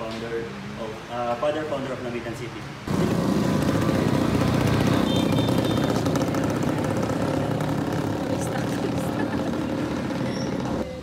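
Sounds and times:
vehicle engine running: 0:02.9 - 0:10.8.

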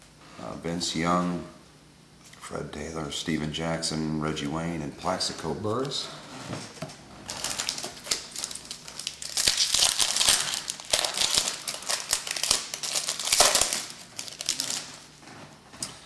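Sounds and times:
card pack wrapper crinkling and tearing: 0:07.3 - 0:15.1.

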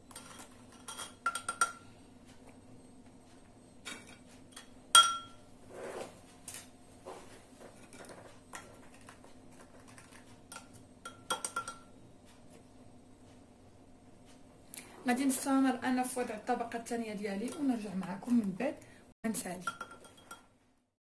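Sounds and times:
metal spoon clinking on ceramic bowl: 0:03.9 - 0:05.4, 0:10.5 - 0:11.9, 0:17.5 - 0:17.8, 0:19.6 - 0:20.5.

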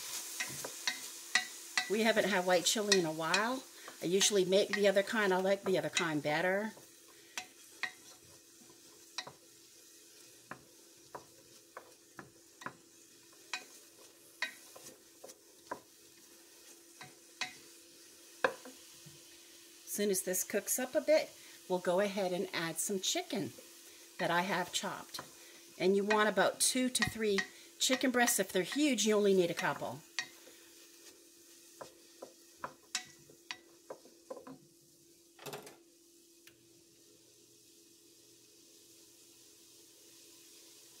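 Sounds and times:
onions sizzling in oil: 0:00.0 - 0:41.0
spoon scraping a pot: 0:10.4 - 0:15.9.

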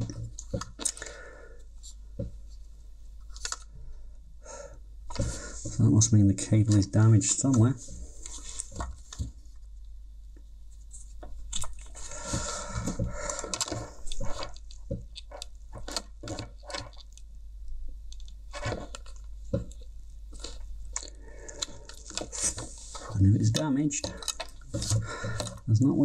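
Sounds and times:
plastic headphones rubbing and clicking: 0:05.1 - 0:09.9, 0:10.7 - 0:17.3, 0:18.0 - 0:26.0.

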